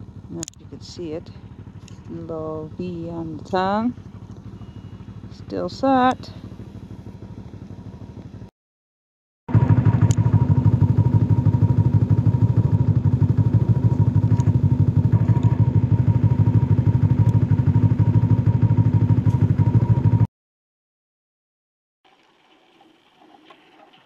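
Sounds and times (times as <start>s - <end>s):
snowmobile engine running: 0.0s - 8.3s, 9.5s - 20.3s.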